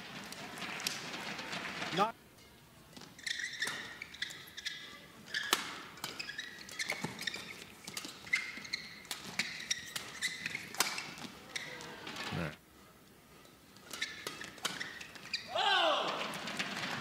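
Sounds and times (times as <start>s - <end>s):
shoes squeaking on court: 2.9s - 12.5s, 13.4s - 17.0s.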